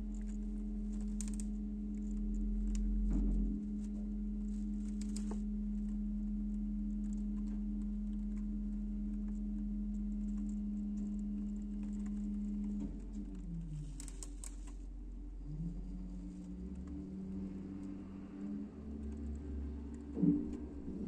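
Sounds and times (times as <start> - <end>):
light clicks and rattles: 7.0 - 14.9.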